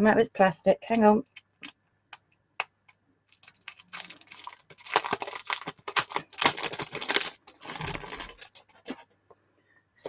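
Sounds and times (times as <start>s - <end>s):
plastic wrapper crinkling: 1.2s - 9.0s.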